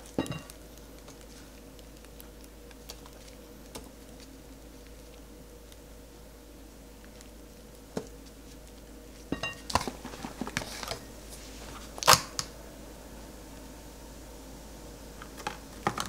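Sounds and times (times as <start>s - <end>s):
plastic clamshell crackling: 0.0s - 5.9s, 11.8s - 12.5s.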